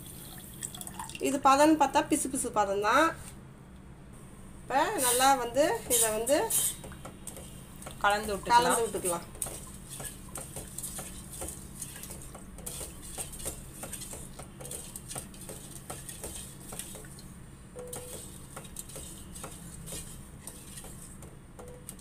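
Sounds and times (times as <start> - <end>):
spatula scraping steel pot: 4.9 - 7.5, 8.2 - 17.2, 17.8 - 21.2.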